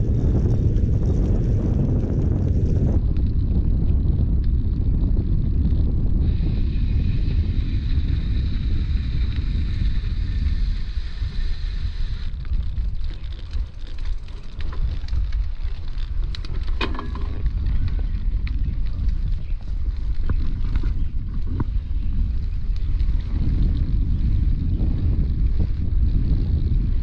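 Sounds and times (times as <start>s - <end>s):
bicycle rolling on gravel: 0.0s - 27.0s
wind buffeting microphone: 0.0s - 27.0s.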